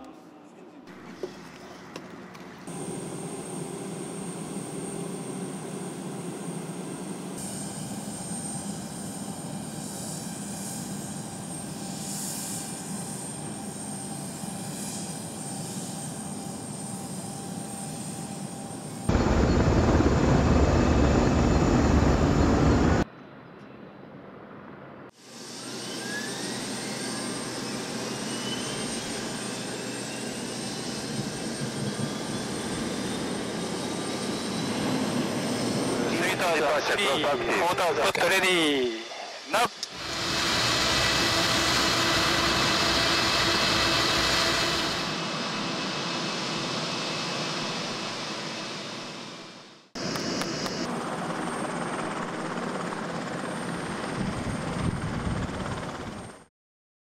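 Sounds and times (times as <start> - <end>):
jet engine noise: 1.0 - 23.1, 25.1 - 56.5
turbine whine rising in pitch: 19.0 - 23.0, 38.5 - 50.9.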